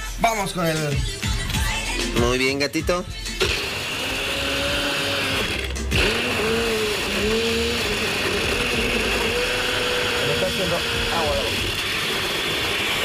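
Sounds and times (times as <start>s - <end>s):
blender blending ice: 3.4s - 13.0s.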